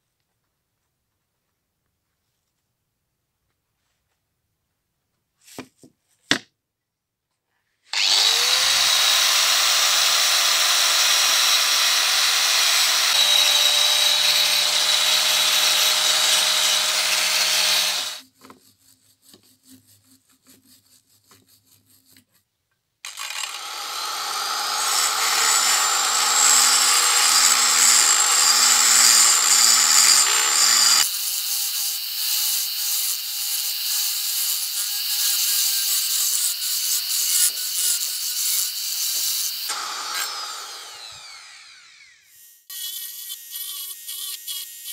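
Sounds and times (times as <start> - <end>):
rotary tool whine: 7.9 - 18.2, 23.0 - 31.1, 39.2 - 44.7
wire brush scratching: 18.2 - 22.5.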